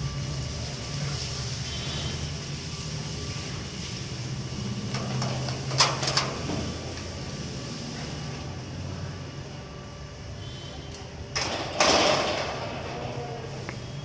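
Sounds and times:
steel gate clanking: 0:04.9 - 0:07.0, 0:11.3 - 0:13.3.

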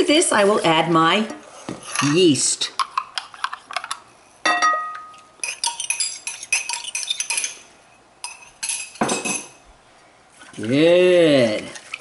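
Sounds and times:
metal spoon clinking on glass: 0:04.4 - 0:07.6, 0:08.2 - 0:09.6.

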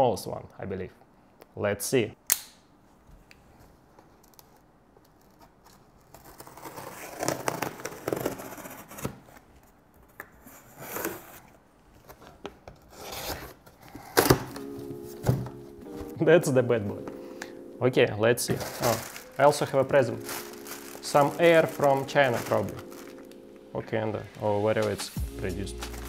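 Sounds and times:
packing tape being slit and torn: 0:04.3 - 0:09.2, 0:20.1 - 0:23.6
cardboard flaps rustling: 0:12.0 - 0:17.2, 0:18.4 - 0:23.4.

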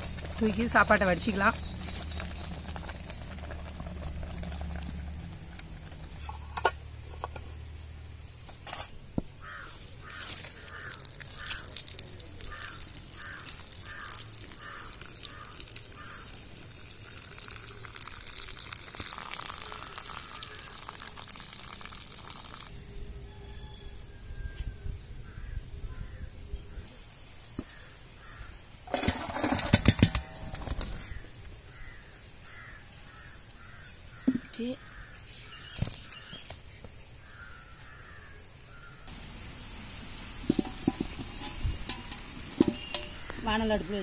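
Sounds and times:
water pouring and splashing on ground: 0:00.0 - 0:07.0, 0:10.0 - 0:22.8, 0:39.1 - 0:44.0
metal pot knocks: 0:40.4 - 0:43.4.

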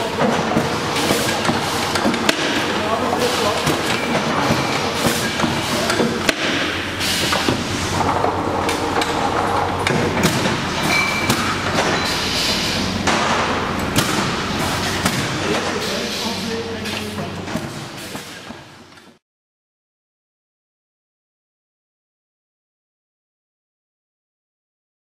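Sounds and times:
machine humming: 0:00.0 - 0:18.9
clattering knocks of glass bottles: 0:10.8 - 0:12.1.

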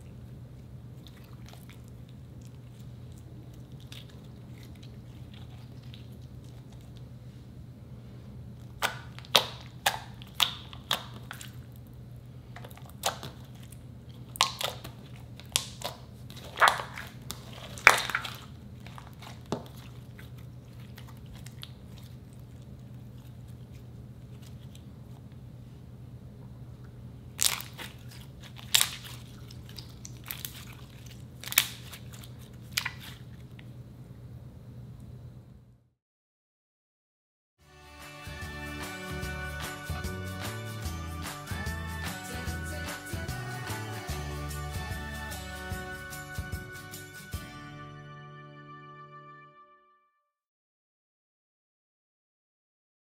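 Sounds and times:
steady low hum: 0:00.0 - 0:35.9
slime wet pops and clicks: 0:08.8 - 0:11.4.

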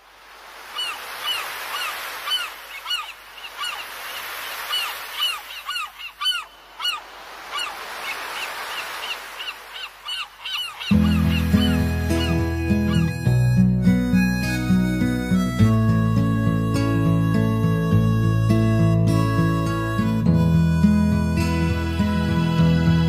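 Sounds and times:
sea surf washing: 0:00.0 - 0:23.0
seagulls calling: 0:00.6 - 0:23.0
music: 0:10.9 - 0:23.0.

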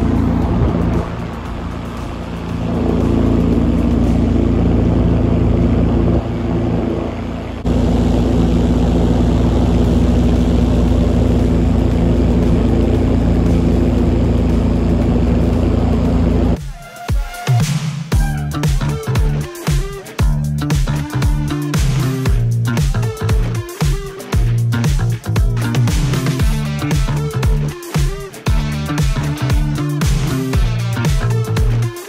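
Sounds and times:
light aircraft engine droning: 0:00.0 - 0:16.6.

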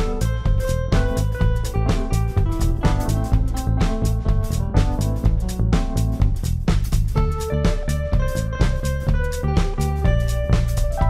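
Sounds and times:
drum kit steady beat: 0:00.0 - 0:11.0
melody of held notes: 0:07.2 - 0:11.0.

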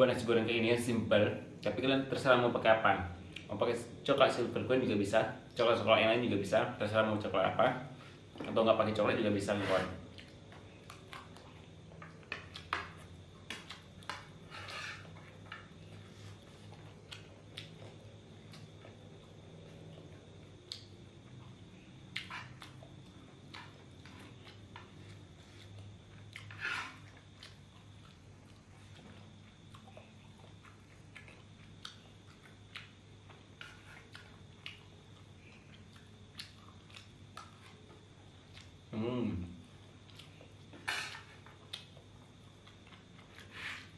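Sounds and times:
faint low hum: 0:00.0 - 0:43.9
soft chewing: 0:10.0 - 0:38.9, 0:39.6 - 0:43.9
spoon scraping a frying pan: 0:14.2 - 0:15.7, 0:22.3 - 0:22.6, 0:26.4 - 0:27.1, 0:40.7 - 0:41.4.

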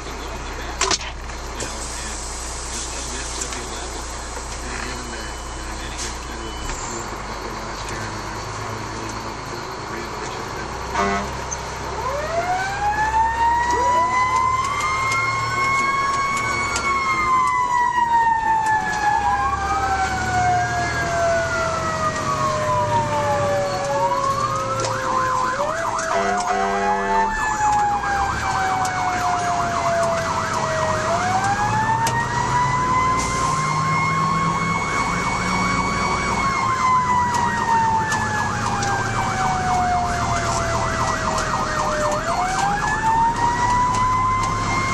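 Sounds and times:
truck engine and road rumble: 0:00.0 - 0:44.9
siren winding up and down: 0:10.9 - 0:44.9
siren wailing and yelping: 0:11.9 - 0:44.9.

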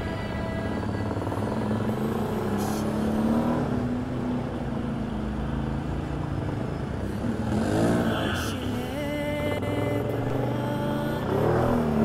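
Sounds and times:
atv engine running: 0:00.0 - 0:08.2, 0:09.0 - 0:12.0.

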